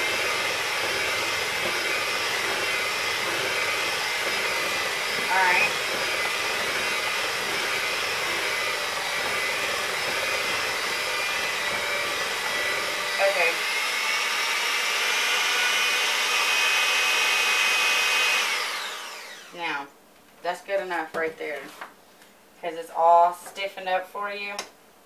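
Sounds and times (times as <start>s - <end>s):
electric hand mixer whining: 0.0s - 19.8s.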